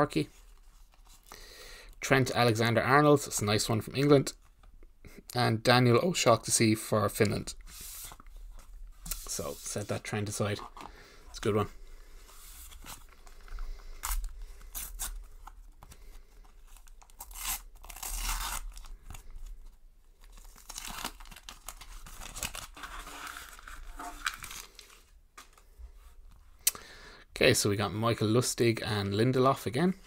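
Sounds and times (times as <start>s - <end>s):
wrapper tearing and crinkling: 16.8s - 19.4s, 20.2s - 25.6s.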